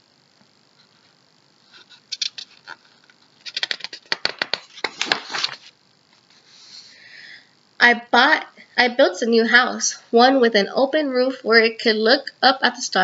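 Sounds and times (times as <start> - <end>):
book pages rustling: 1.7 - 6.6.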